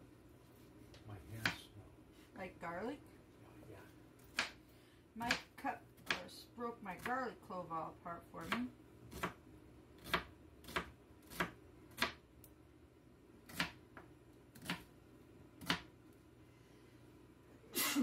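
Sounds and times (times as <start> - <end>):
knife chopping on cutting board: 4.3 - 4.6, 8.4 - 9.4, 10.0 - 12.2, 15.6 - 15.9.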